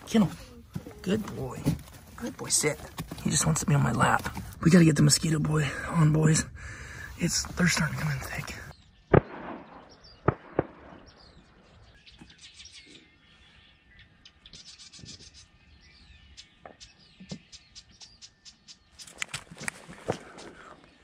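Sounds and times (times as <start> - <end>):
small birds chirping: 0.0 - 21.0
sharp clicks: 10.2 - 11.2.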